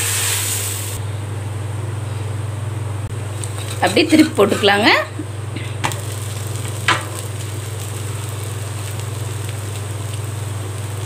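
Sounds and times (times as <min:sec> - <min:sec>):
batter sizzling on a hot griddle: 0:00.0 - 0:01.0, 0:05.8 - 0:11.0.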